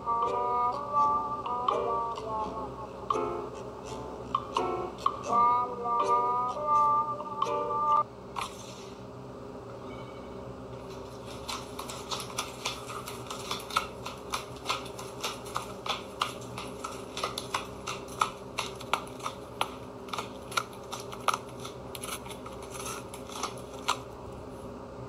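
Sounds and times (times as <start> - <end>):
steady low hum: 0.0 - 25.0
cat chewing crunching clicks: 11.2 - 24.1.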